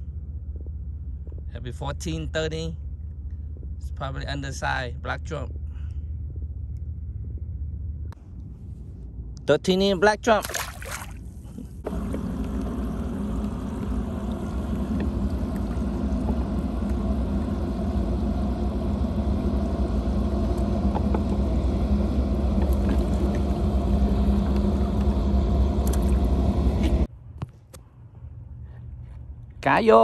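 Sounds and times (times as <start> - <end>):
water splashing into water: 10.4 - 16.4
pump humming: 10.4 - 27.1.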